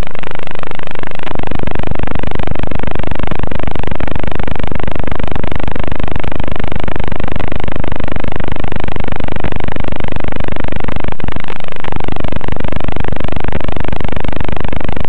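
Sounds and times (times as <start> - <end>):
quadcopter motors buzzing: 0.0 - 11.0.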